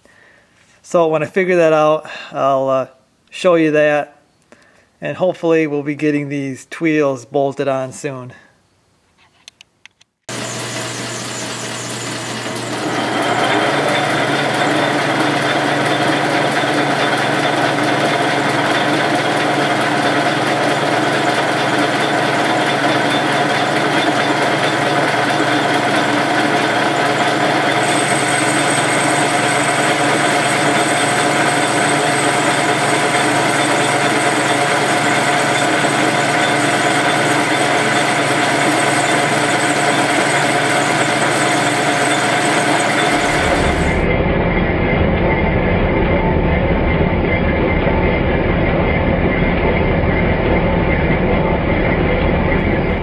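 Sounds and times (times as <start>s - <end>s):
metal lathe running: 10.3s - 44.1s, 52.6s - 53.0s
tool boring metal: 10.3s - 44.1s.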